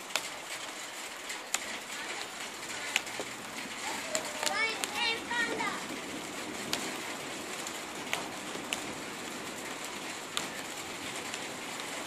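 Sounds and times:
heavy rain falling: 0.0 - 12.0
sharp taps of drops close by: 4.1 - 5.2.

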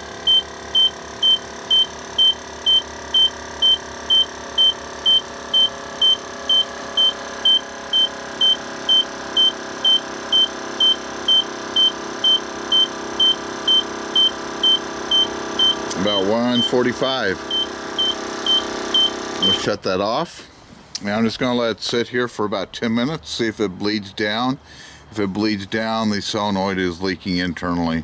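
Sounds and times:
air compressor humming: 0.0 - 19.8
high electronic beeps: 0.3 - 19.6.

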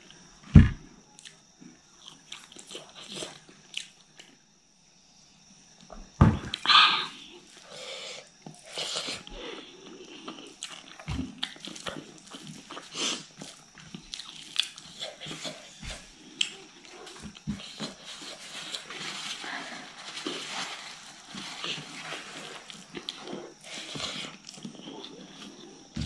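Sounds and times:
wet chewing and mouth smacks: 9.8 - 15.4.

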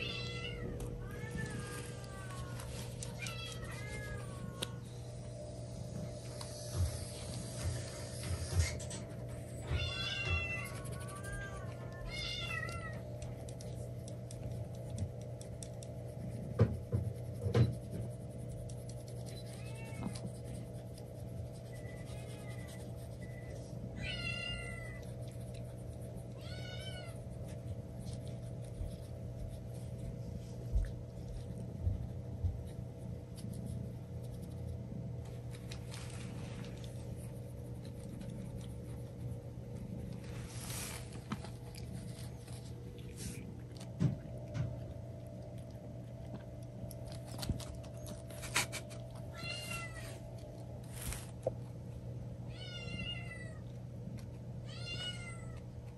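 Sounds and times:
cat meowing: 0.0 - 4.9, 9.6 - 13.1, 21.8 - 25.1, 26.3 - 27.2, 49.3 - 50.2, 52.5 - 53.7, 54.6 - 55.6.

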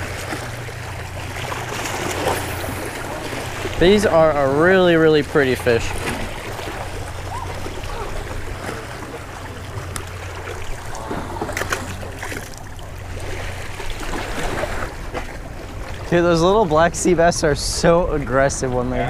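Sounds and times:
fish splashing into water: 5.8 - 15.4.

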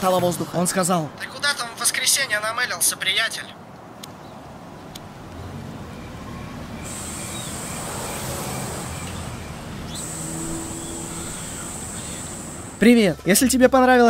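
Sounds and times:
minibus engine humming: 3.6 - 13.3.

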